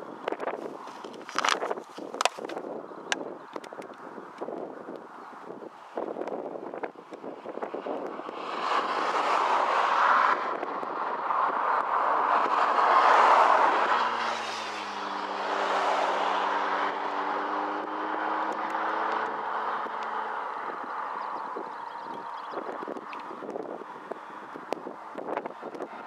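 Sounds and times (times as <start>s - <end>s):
wind noise on microphone: 0.0s - 26.0s.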